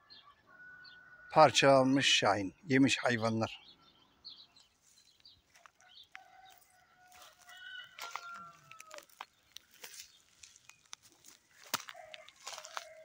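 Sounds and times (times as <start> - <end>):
footsteps in dry grass: 4.4 - 13.0.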